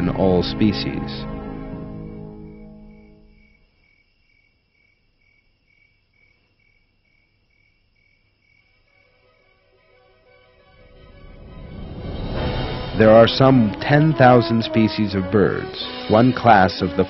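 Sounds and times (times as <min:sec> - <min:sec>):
background music: 0:00.0 - 0:03.6, 0:08.9 - 0:17.0
insect chirping: 0:00.2 - 0:16.1.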